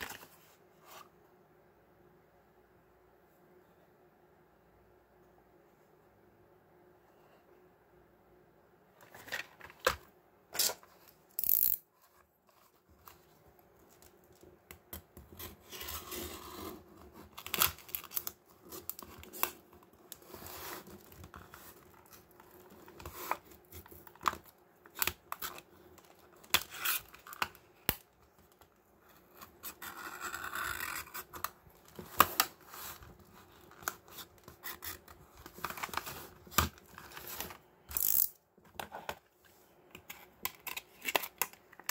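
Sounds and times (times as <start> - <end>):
knife cutting plastic packaging: 15.3 - 25.7.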